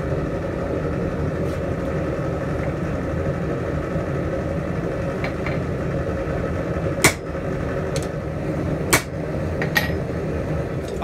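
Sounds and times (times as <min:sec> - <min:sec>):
hammer striking metal on anvil: 0:07.0 - 0:07.2, 0:08.9 - 0:10.0.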